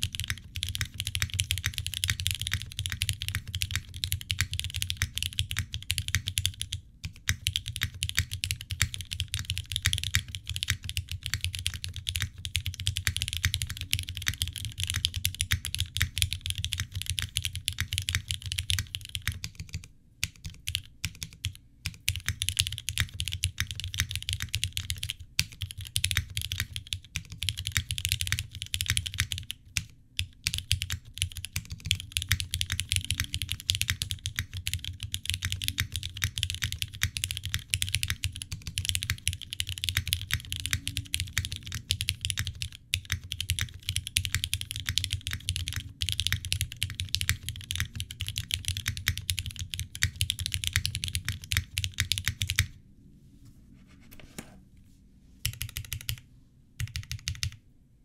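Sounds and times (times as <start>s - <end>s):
mechanical keyboard typing: 0.0s - 52.8s, 55.4s - 56.2s, 56.8s - 57.6s.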